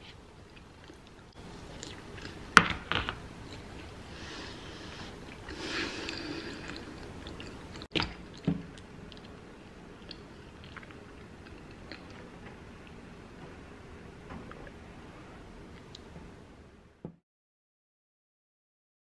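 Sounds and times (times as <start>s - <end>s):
person chewing: 0.0s - 2.5s, 3.4s - 13.0s.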